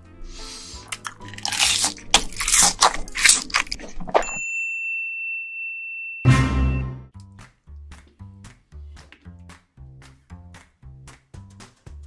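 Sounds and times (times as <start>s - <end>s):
cartoon crunchy bites: 0.5s - 4.4s
high ding: 4.2s - 7.1s.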